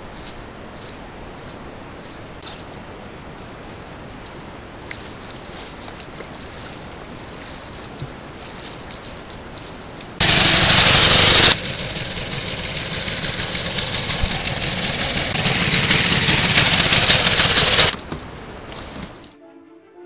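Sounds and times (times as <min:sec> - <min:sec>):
two-stroke outboard motor running: 0:10.2 - 0:18.0.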